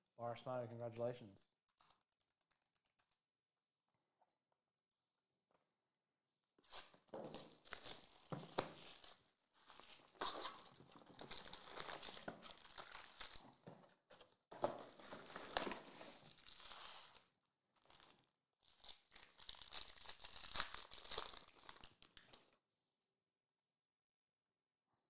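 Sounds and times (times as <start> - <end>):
foil wrappers crinkling and tearing: 6.7 - 13.6, 14.7 - 22.5.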